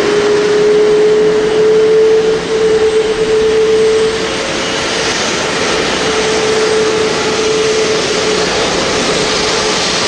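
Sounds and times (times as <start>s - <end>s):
jet engine whine: 0.0s - 10.0s.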